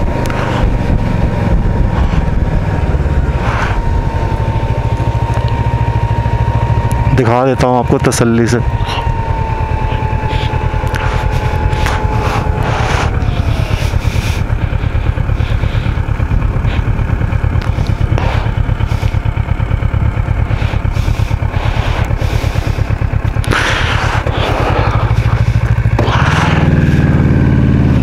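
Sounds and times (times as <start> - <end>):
motorcycle engine running: 0.0 - 28.0.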